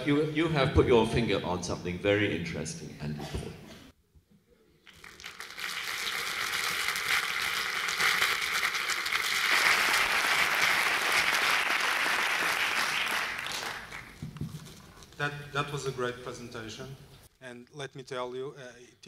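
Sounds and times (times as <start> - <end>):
audience applauding: 4.9 - 14.2.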